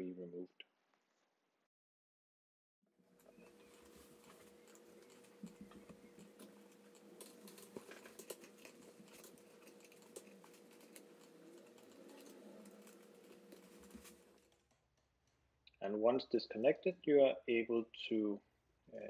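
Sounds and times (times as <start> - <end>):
faint steady hum: 3.0 - 19.0
fingers clicking and scratching cable: 3.2 - 15.4.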